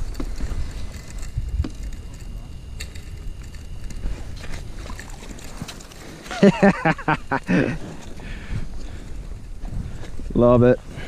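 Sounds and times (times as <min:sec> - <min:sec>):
fishing reel clicks: 0:00.0 - 0:06.0
wind buffeting microphone: 0:00.0 - 0:06.6, 0:07.2 - 0:11.0.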